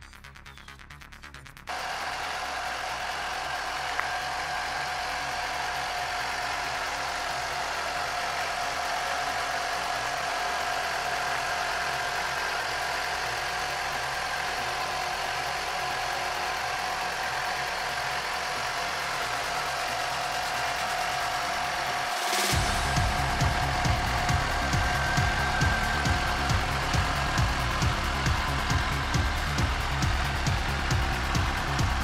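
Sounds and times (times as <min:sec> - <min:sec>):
motorcycle engine idling: 0:22.5 - 0:32.0.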